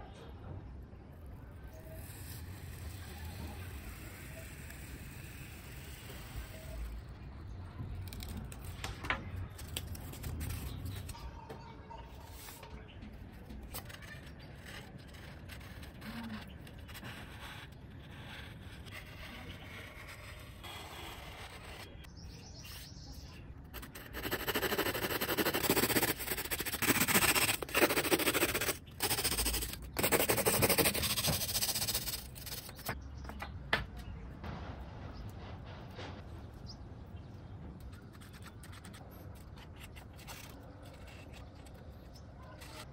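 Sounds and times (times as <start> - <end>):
hacksaw rasping through foam: 2.3 - 6.9, 23.8 - 32.9.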